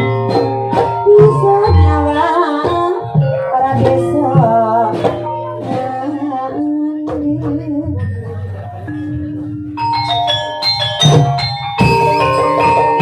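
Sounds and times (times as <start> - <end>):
person singing wavering melody: 0.0 - 13.0
sustained metallophone notes: 0.0 - 13.0
sharp percussion strokes: 8.8 - 13.0.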